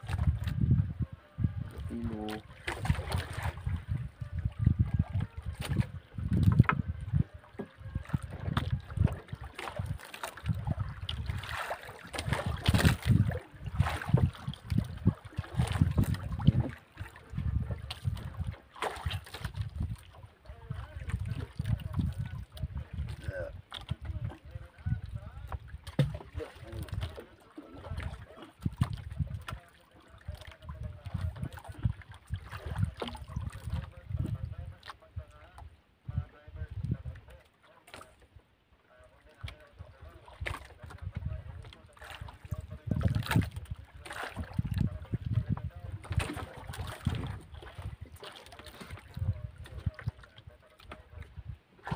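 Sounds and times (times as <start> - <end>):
wind buffeting microphone: 0.0 - 27.2, 27.8 - 35.4, 36.0 - 37.3, 39.4 - 51.9
water lapping against boat hull: 0.0 - 51.9.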